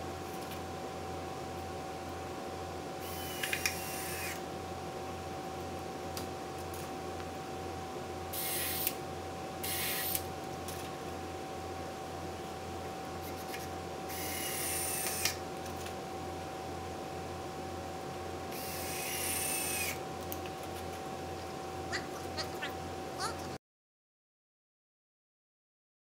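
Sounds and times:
cordless drill whining: 3.0s - 4.4s, 14.1s - 15.4s, 18.6s - 20.0s.

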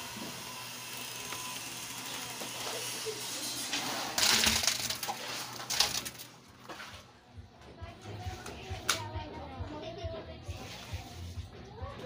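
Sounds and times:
concrete sliding out of bucket: 3.6s - 7.1s, 10.5s - 11.5s.

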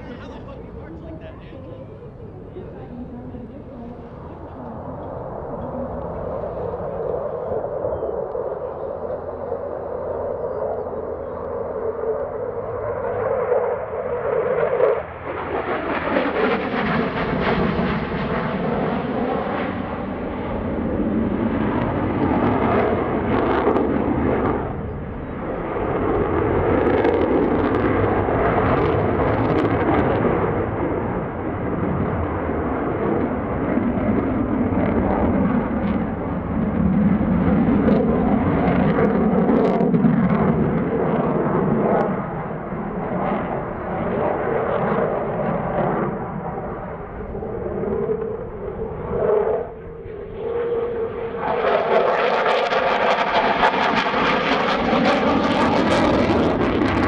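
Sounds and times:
jet engine rushing: 0.0s - 57.0s.

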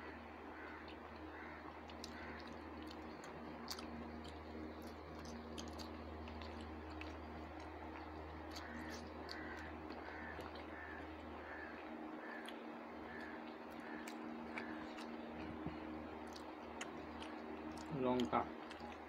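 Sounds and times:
bird calling: 0.0s - 2.9s, 8.5s - 15.2s
low hum: 0.0s - 19.0s
chewing: 0.6s - 19.0s.

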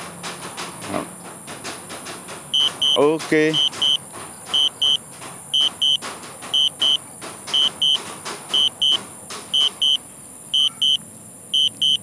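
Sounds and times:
short high beeps: 2.6s - 3.0s, 10.6s - 11.0s, 11.6s - 12.0s.

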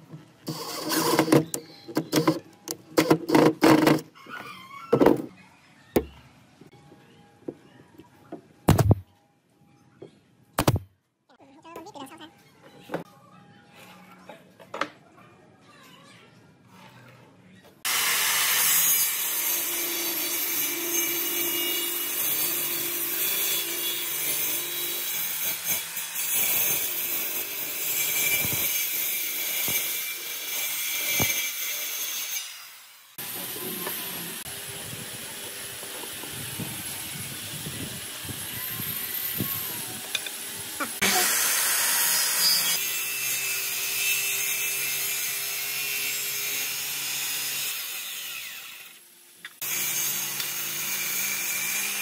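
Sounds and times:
circular saw cutting wood: 0.4s - 2.4s, 17.9s - 52.0s.

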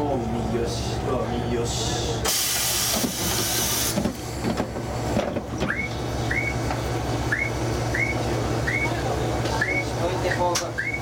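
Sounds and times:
diesel railcar engine idling: 0.0s - 11.0s
air hiss: 2.3s - 4.0s.

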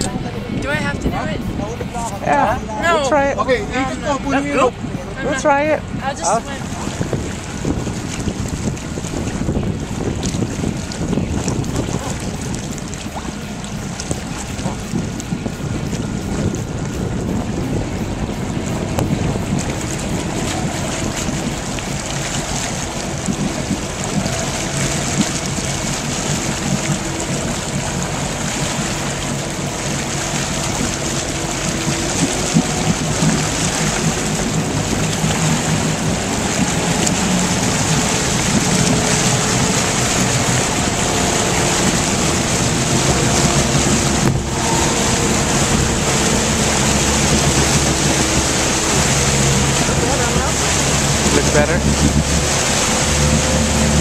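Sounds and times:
motorboat engine running: 0.0s - 54.0s
water rushing past hull: 0.0s - 54.0s
wind on microphone: 0.0s - 54.0s.

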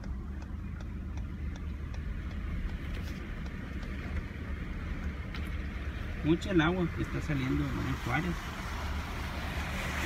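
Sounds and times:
faint ticks: 0.0s - 4.3s
car engine and road rumble: 0.0s - 10.0s.

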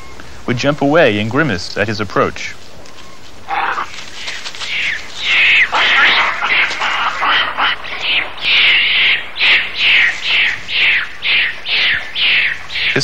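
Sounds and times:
monkeys screaming: 2.9s - 13.0s.

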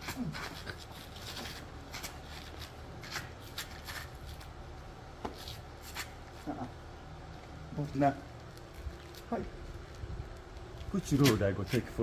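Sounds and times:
scuffs and scrapes on dirt: 0.0s - 6.6s.

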